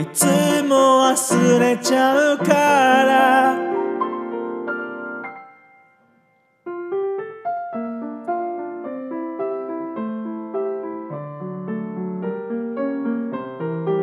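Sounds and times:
person singing: 0:00.0 - 0:04.3
piano accompaniment: 0:00.0 - 0:14.0.

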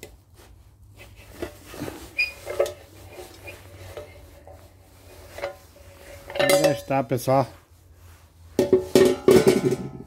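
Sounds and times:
metal clinking and knocking: 0:06.2 - 0:06.9, 0:08.6 - 0:10.0.

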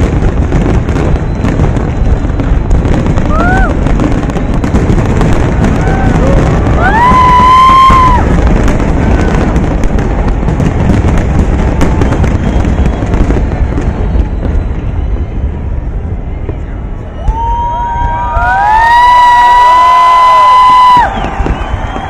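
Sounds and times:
fireworks booming and crackling: 0:00.0 - 0:22.0
spectator whooping: 0:03.2 - 0:03.9, 0:05.4 - 0:09.6, 0:17.2 - 0:22.0.

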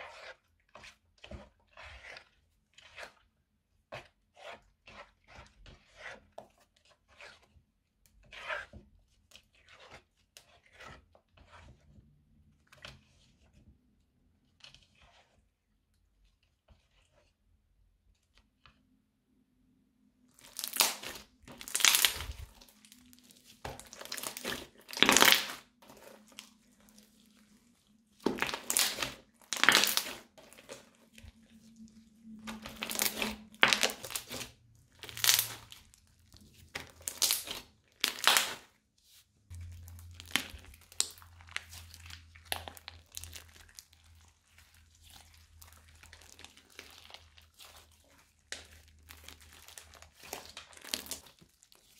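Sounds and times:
crunchy slime crackling: 0:20.3 - 0:31.7, 0:32.4 - 0:38.7, 0:39.5 - 0:51.9.

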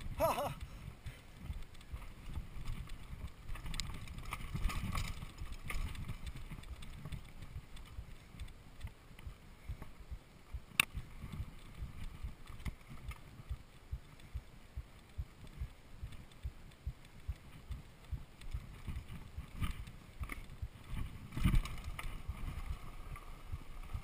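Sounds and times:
bike tyres rumbling on dirt: 0:00.0 - 0:24.0.

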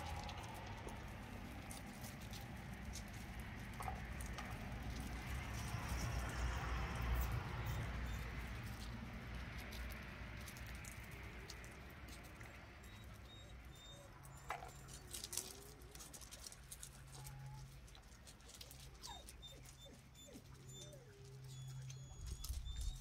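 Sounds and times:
small paws on gravel: 0:00.0 - 0:23.0
puppies squeaking and whimpering: 0:07.1 - 0:23.0.

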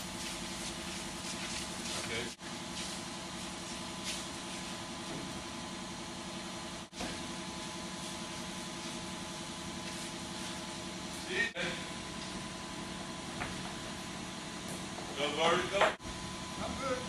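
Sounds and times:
steady machine hum: 0:00.0 - 0:17.0.

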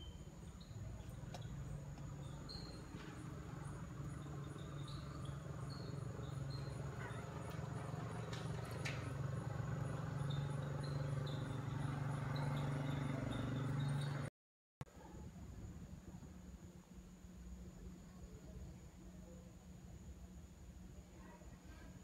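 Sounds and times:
insects buzzing: 0:00.0 - 0:14.2.

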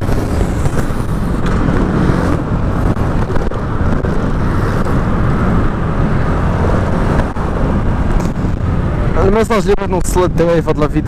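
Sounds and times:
scooter engine running: 0:00.0 - 0:08.8
wind rush on microphone: 0:00.0 - 0:11.0.

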